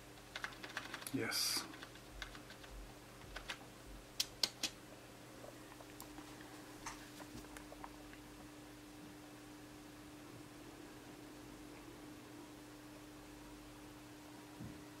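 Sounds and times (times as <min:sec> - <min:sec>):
faint steady hum: 0:00.0 - 0:15.0
computer keyboard clicks: 0:00.3 - 0:02.7, 0:03.4 - 0:03.6.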